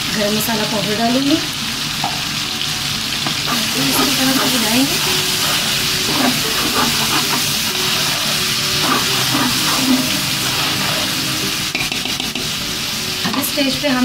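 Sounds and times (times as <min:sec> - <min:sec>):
spice paste sizzling in oil: 0:00.0 - 0:14.0
spatula stirring in pot: 0:03.2 - 0:12.4.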